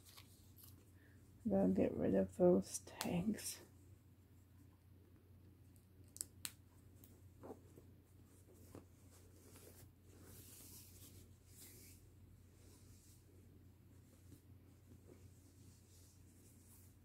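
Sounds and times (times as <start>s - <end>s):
fabric rustling: 7.2s - 17.0s.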